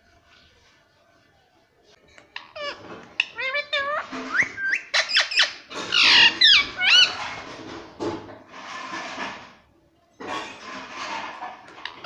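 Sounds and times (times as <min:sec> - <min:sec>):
parakeet raspy squawks: 0:02.4 - 0:07.3
parakeet whistles and chirps: 0:03.4 - 0:07.2.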